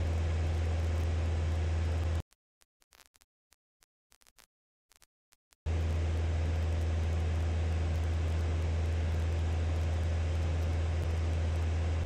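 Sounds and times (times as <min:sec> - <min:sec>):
propeller aircraft engine drone: 0:00.0 - 0:02.2, 0:05.7 - 0:12.0.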